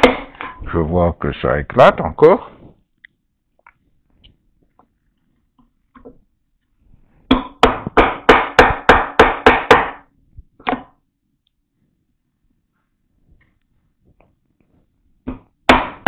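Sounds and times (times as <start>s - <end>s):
mallet striking chisel into wood: 0.0s - 0.6s, 7.3s - 10.9s, 15.2s - 16.0s.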